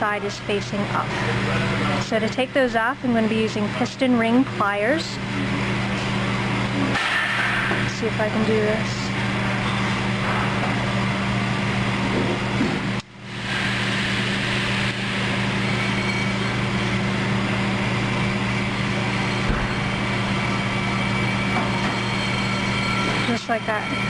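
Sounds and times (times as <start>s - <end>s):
mechanical hum with hiss: 0.0s - 24.0s.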